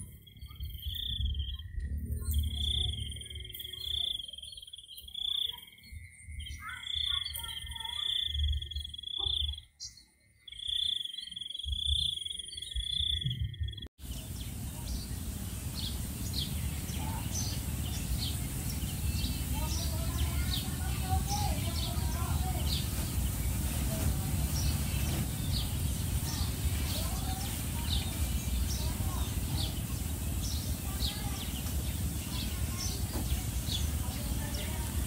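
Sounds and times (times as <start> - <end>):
low rumble: 1.0 - 3.6
hissing background: 14.0 - 35.0
insects droning: 14.0 - 35.0.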